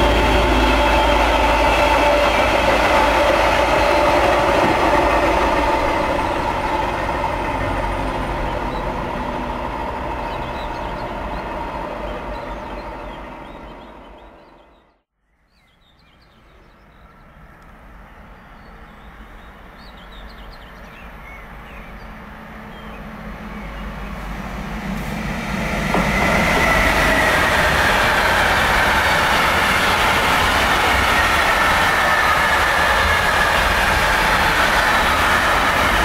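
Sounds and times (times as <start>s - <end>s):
freight train wheels rolling: 0.0s - 14.6s, 22.0s - 36.0s.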